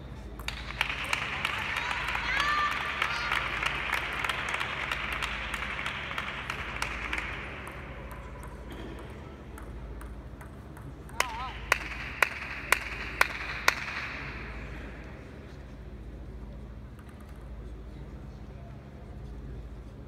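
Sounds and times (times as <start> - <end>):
table tennis ball bouncing: 0.3 - 1.3, 5.6 - 14.5.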